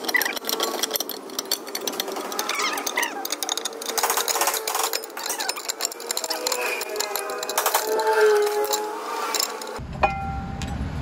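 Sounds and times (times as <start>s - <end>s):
ratchet tool clicking: 0.0s - 9.8s.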